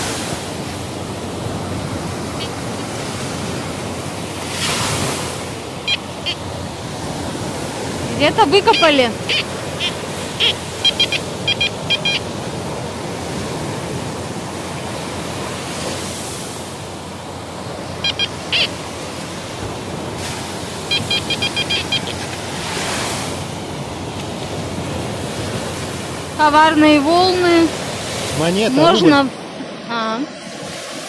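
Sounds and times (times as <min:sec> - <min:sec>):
surf washing: 0:00.0 - 0:31.0
metal detector beeps: 0:02.4 - 0:02.7, 0:05.8 - 0:06.6, 0:08.2 - 0:12.4, 0:17.9 - 0:18.8, 0:20.8 - 0:22.5.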